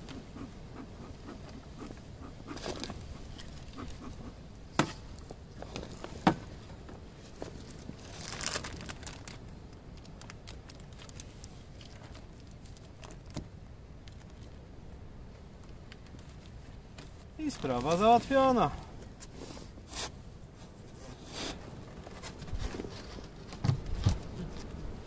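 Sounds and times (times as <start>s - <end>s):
sharp knocks on beehive: 4.7s - 5.0s
crinkling rustle: 5.0s - 14.7s, 15.3s - 19.6s, 20.5s - 25.0s.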